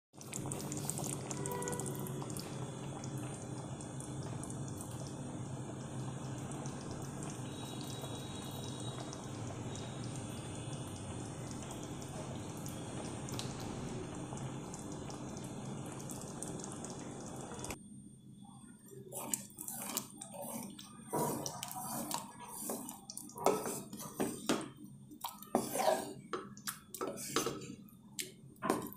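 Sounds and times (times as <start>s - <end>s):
curry bubbling in a pot: 0.1s - 17.8s, 18.6s - 28.9s
spatula scraping a pot: 19.1s - 24.6s, 25.5s - 26.3s.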